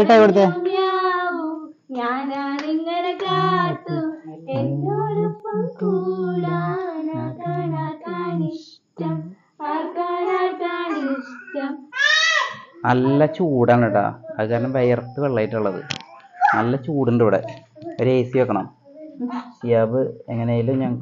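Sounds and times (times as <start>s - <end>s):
people singing together: 0.0s - 11.8s.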